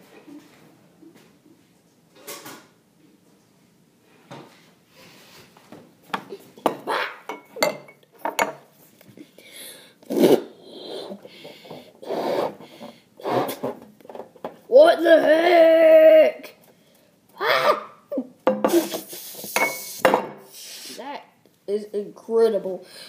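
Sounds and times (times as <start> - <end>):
breaths blown into balloon: 10.0 - 13.8, 18.7 - 21.1
balloon rubbing on metal pot: 12.0 - 13.8.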